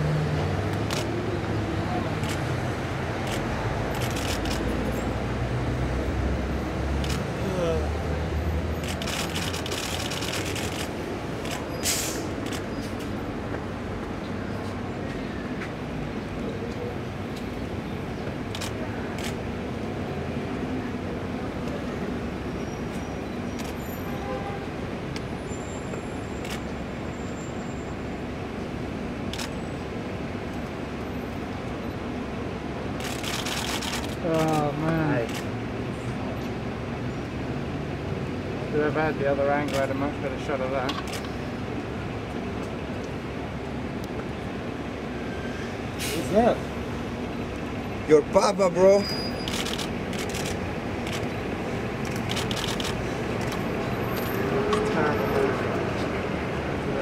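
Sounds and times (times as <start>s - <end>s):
street traffic noise: 0.0s - 57.0s
camera shutter clicks: 3.2s - 4.7s, 8.8s - 11.7s, 49.4s - 51.3s, 52.0s - 53.6s.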